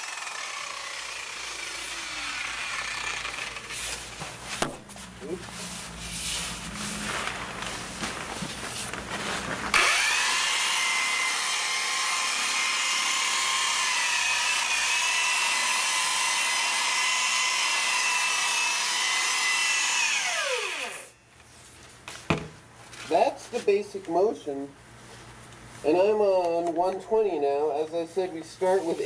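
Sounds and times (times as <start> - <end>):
electric sander whining: 0.0 - 4.3, 9.7 - 21.2
handling noises: 3.7 - 9.8.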